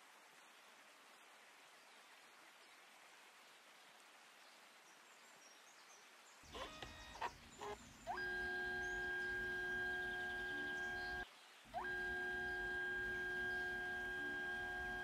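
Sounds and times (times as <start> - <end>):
printer mechanism buzzy clicks: 6.6 - 11.2, 11.8 - 15.0
printer motor whine: 6.6 - 15.0.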